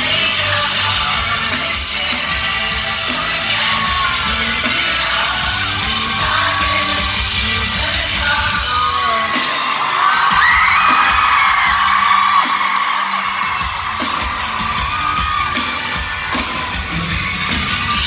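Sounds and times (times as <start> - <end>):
person singing: 0.0 - 11.9
crowd screaming and singing: 0.0 - 18.0
live pop-rock band: 0.0 - 18.0.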